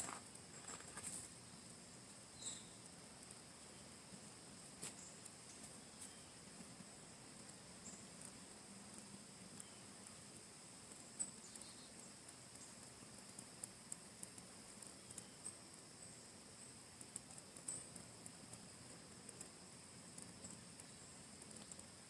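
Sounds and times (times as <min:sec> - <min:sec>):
faint steady hiss: 0:00.0 - 0:22.0
soft sharp ticks: 0:02.4 - 0:03.4, 0:04.8 - 0:06.8, 0:07.4 - 0:16.2, 0:16.8 - 0:22.0.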